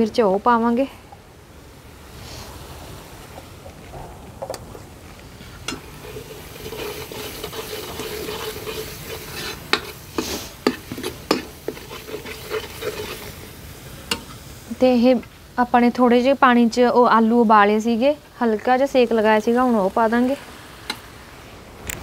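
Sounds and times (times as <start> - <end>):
spices sizzling in oil: 5.4 - 21.4
ladle scraping a pan: 5.6 - 13.5.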